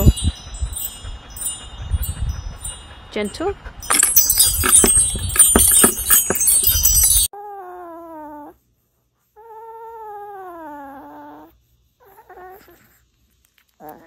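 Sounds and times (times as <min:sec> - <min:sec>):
wind chime tubes clanging: 0:00.0 - 0:07.3.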